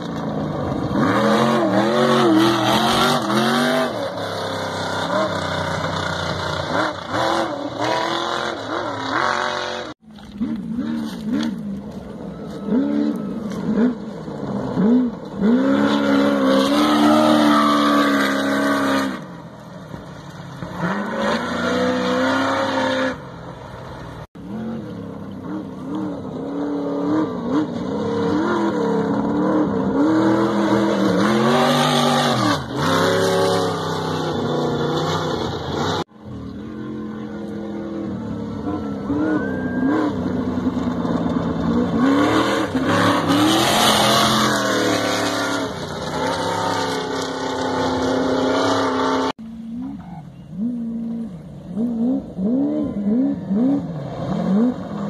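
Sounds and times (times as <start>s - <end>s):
buggy engines revving past: 0.0s - 55.0s.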